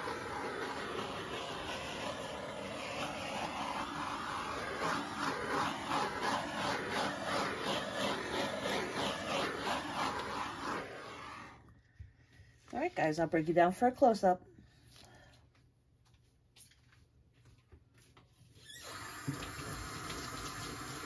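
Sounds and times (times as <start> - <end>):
gas torch flame hissing: 0.0 - 11.7, 18.6 - 21.0.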